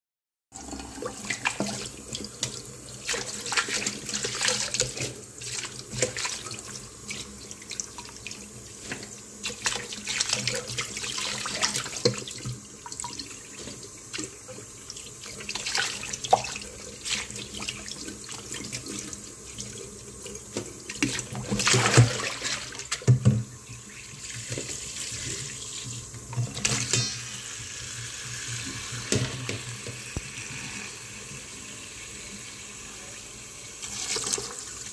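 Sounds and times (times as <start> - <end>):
leaves splashing in water: 21.5 - 22.8
tap running into bowl: 22.9 - 23.6, 28.8 - 30.3.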